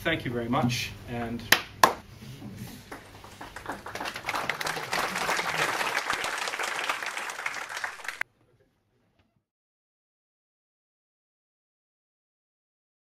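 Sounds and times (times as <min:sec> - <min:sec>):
audience applauding: 0:02.8 - 0:08.2.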